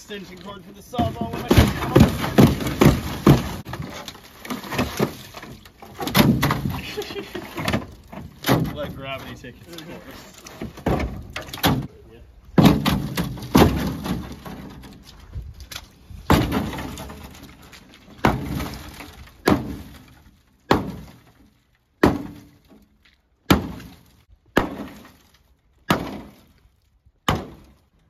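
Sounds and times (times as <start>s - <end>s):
sheet metal being kicked and struck: 0.9s - 6.9s, 12.6s - 15.0s, 16.3s - 17.6s, 18.2s - 21.3s, 23.5s - 24.0s.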